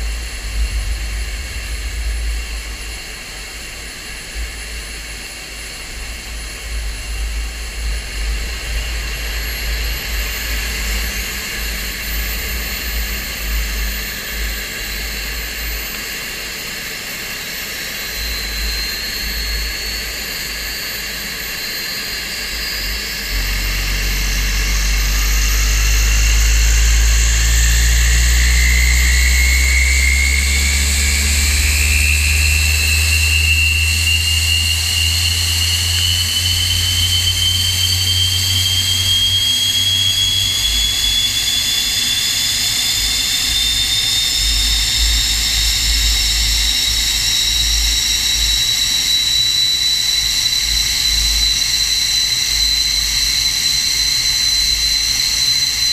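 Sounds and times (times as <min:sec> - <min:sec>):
low rumble: 0:00.0 - 0:04.6, 0:22.5 - 0:39.4
jet engine whine spooling up: 0:00.0 - 0:55.9.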